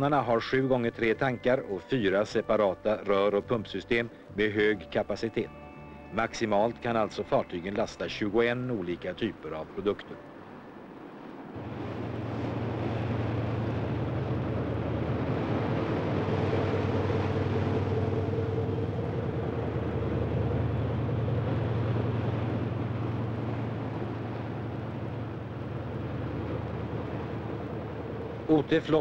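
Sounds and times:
boat engine droning: 0.0 - 29.0
higher steady hum: 0.0 - 29.0
rushing water: 0.0 - 29.0
wind noise: 9.7 - 29.0.

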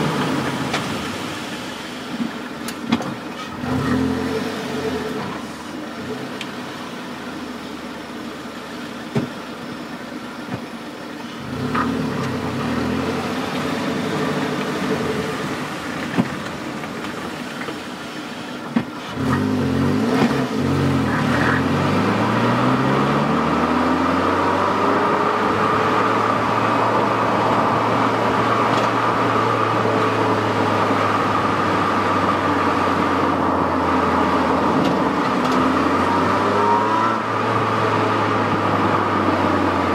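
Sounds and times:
car exhaust idling and accelerating: 0.0 - 39.9.

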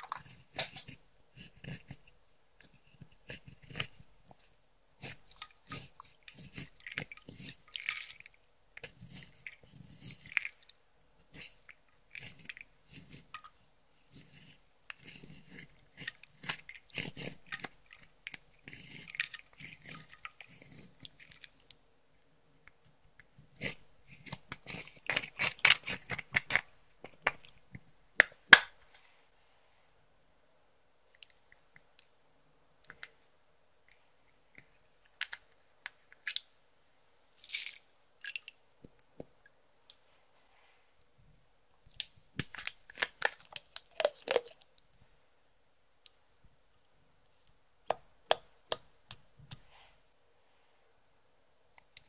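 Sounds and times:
sticky slime crackling: 42.0 - 44.7.

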